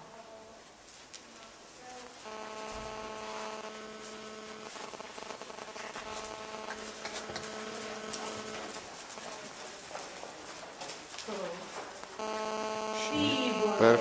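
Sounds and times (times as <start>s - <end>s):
horse hooves walking in sand: 0.2s - 12.2s
steady hum with overtones: 2.0s - 9.6s, 11.9s - 14.0s.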